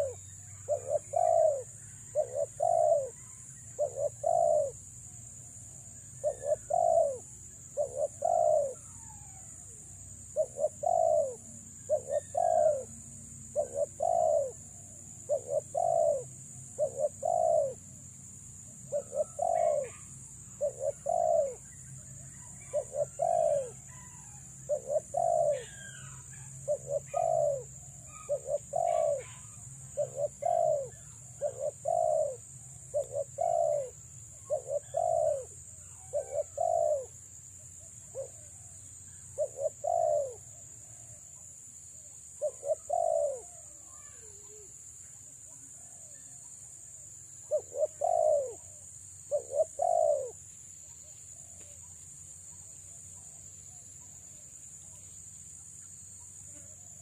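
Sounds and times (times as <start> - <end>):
dove cooing: 0.0 - 4.9, 5.9 - 17.9, 18.9 - 37.2, 38.1 - 38.8, 39.4 - 41.1, 42.4 - 44.8, 47.4 - 50.4
small birds chirping: 0.0 - 57.0.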